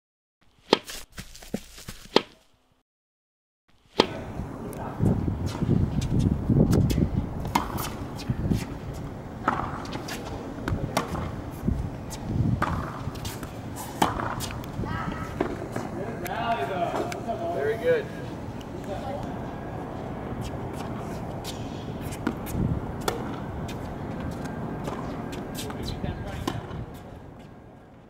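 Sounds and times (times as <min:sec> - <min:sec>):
tennis balls struck by racquets: 0:00.5 - 0:01.0, 0:02.1 - 0:02.4, 0:03.8 - 0:04.3, 0:05.4 - 0:17.2, 0:20.4 - 0:27.1.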